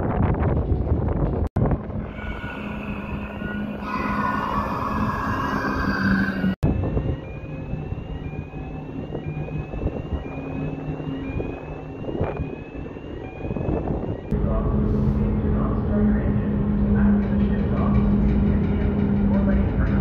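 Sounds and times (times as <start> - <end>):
wind noise: 0.0 - 20.0
ferry engines rumbling: 0.7 - 20.0
faint rising whine: 1.6 - 16.2.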